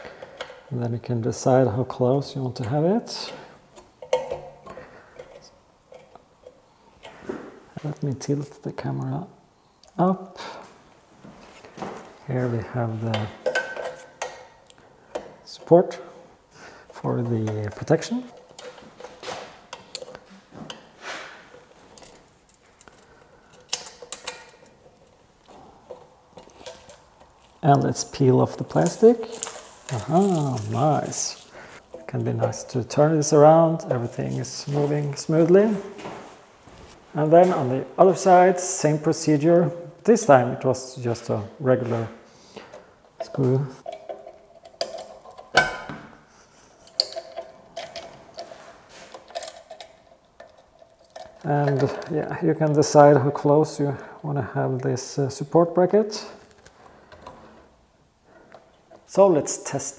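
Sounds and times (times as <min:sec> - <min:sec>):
soft rustling: 0:24.6 - 0:32.8, 0:33.8 - 0:37.8
small metal clicks and clinks: 0:49.1 - 0:52.1.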